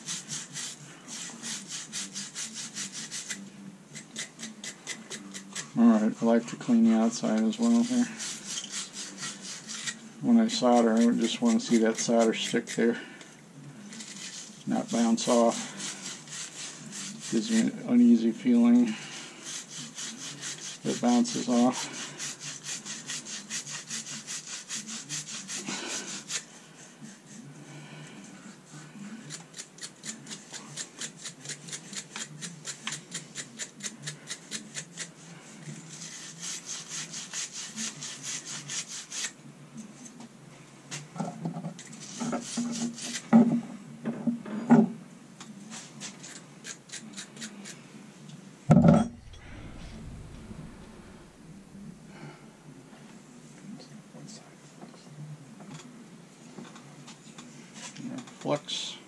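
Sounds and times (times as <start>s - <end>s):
scrubbing metal fittings: 7.0s - 12.8s, 13.9s - 17.8s.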